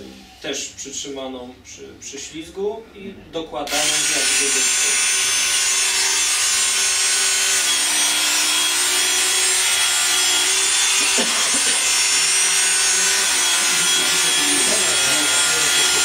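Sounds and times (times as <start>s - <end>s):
electric sharpener grinding: 3.7s - 16.0s.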